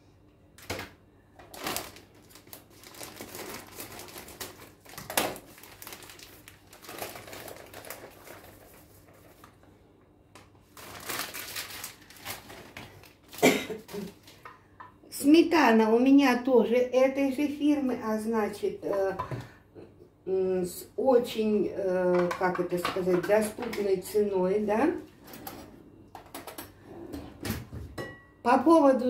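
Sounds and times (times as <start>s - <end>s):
plastic packets crinkling: 1.4s - 9.5s, 10.6s - 14.5s.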